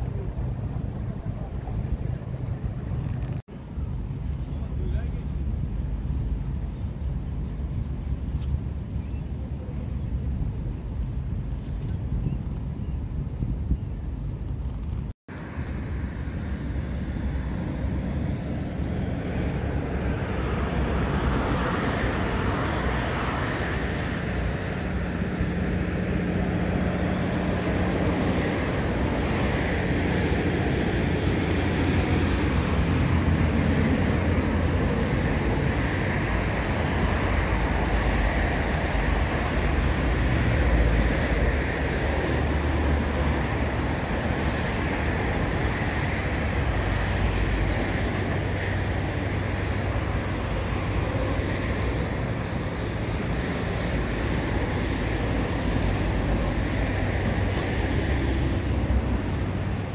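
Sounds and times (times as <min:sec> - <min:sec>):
distant engines rumbling: 0:00.0 - 0:59.9.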